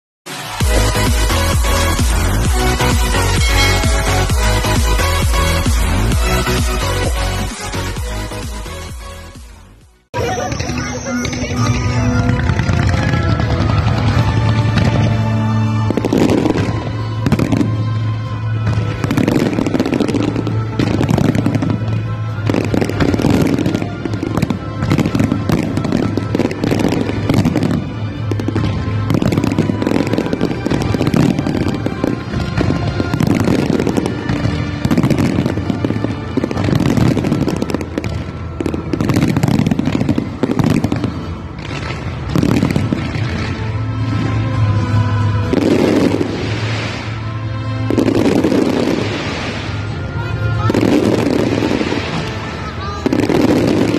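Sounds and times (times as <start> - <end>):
fireworks bangs and crackling: 0.3 - 53.9
music playing: 0.3 - 53.9.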